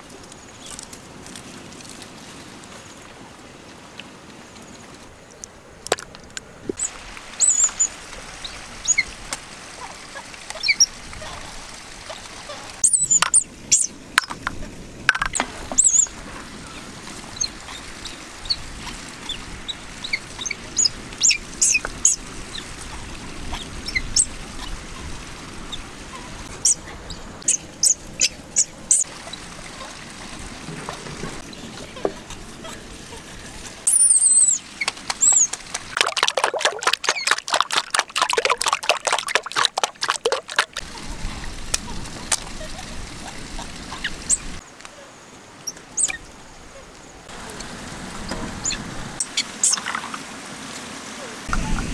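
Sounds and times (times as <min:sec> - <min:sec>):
faint steady hiss: 0:00.0 - 0:37.4
eggs cooking in a pot: 0:35.3 - 0:41.0.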